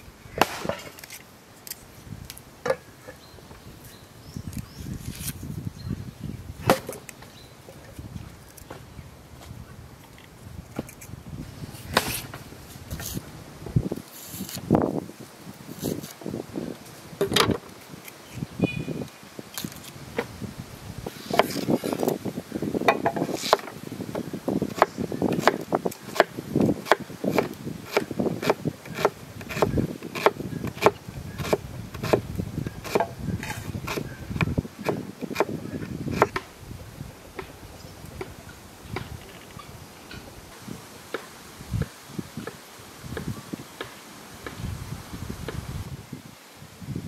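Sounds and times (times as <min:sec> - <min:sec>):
knife chopping on wooden board: 0:24.7 - 0:32.2.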